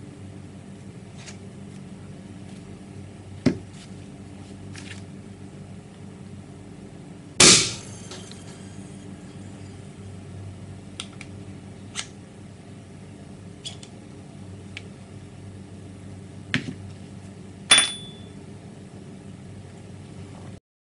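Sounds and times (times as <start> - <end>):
metal clack ringing: 17.7 - 18.3.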